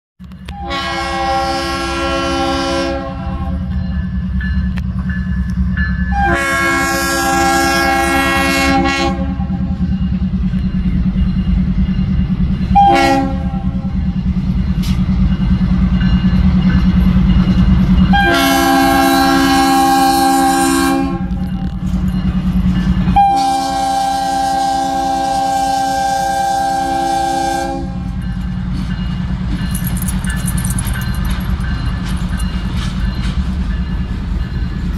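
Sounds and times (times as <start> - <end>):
locomotive air horn blasts: 0.5 - 3.7, 6.1 - 9.7, 12.8 - 13.8, 18.1 - 21.4, 23.1 - 28.2
diesel engine rumbling: 27.9 - 34.9.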